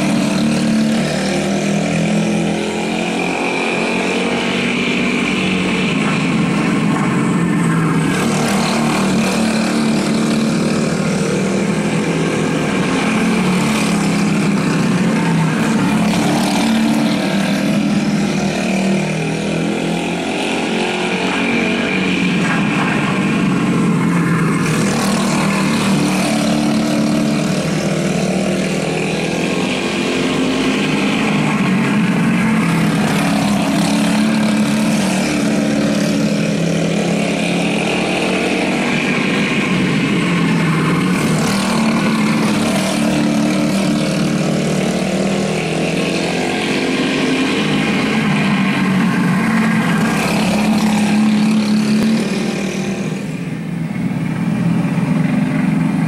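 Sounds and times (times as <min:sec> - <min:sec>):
go-kart engines racing: 0:00.0 - 0:56.0.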